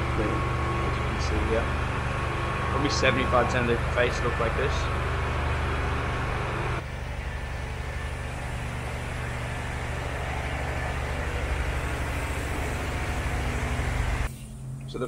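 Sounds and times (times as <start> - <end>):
low mechanical drone: 0.0 - 15.0
hiss: 7.8 - 14.8.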